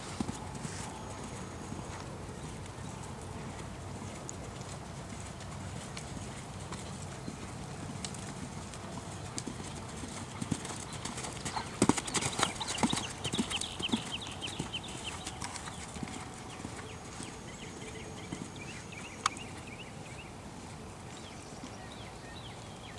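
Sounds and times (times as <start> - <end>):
horse hoofbeats on sand: 0.0 - 20.3.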